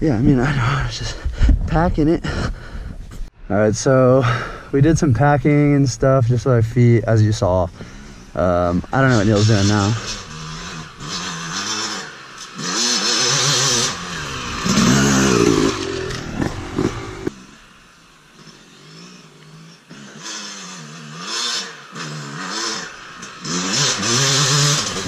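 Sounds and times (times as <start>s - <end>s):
dirt bike engine revving: 7.4s - 25.0s.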